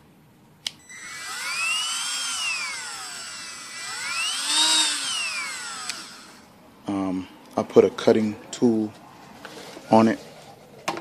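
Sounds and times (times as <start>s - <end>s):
rotary tool motor whine: 0.8s - 6.5s
rotary tool switch click: 4.4s - 6.1s.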